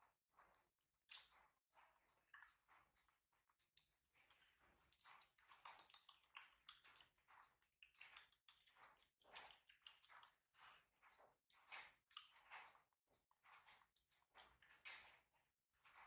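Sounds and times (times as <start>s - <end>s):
monkey chewing wet clicks: 4.3s - 7.2s.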